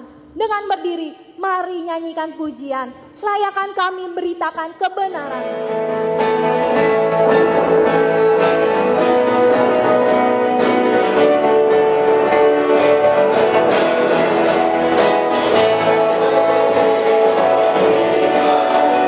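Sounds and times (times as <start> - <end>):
strummed guitar: 5.2 - 19.0
steady beat: 5.3 - 19.0.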